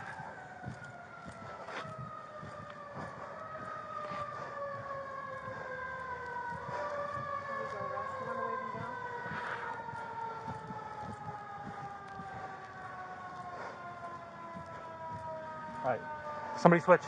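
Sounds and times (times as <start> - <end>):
emergency vehicle siren: 0.0 - 17.0.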